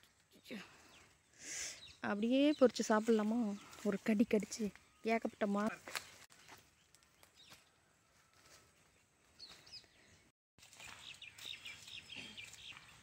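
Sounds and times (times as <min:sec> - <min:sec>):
faint bird chirps: 0:00.3 - 0:03.9.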